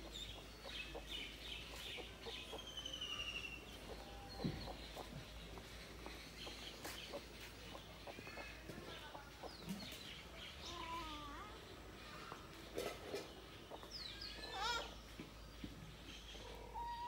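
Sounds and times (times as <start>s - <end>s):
hen clucking softly: 0.0s - 9.8s
ducklings peeping: 0.0s - 10.9s, 13.2s - 14.9s.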